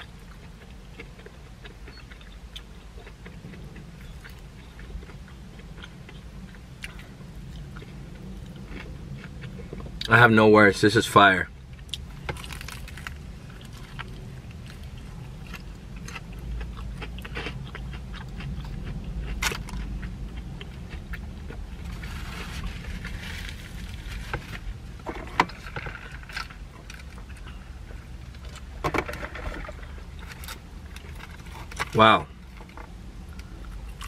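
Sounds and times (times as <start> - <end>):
person chewing crispy chicken: 0.0 - 10.1, 11.7 - 28.8
low car cabin rumble: 0.0 - 34.0.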